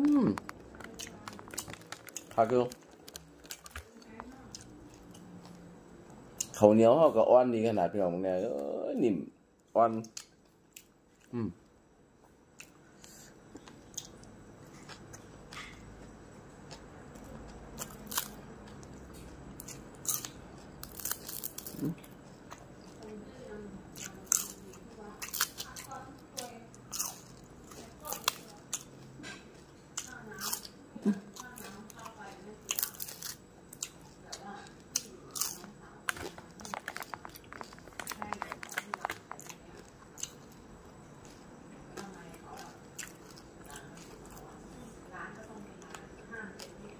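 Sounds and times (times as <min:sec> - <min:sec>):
person chewing with mouth clicks: 0:12.6 - 0:23.0.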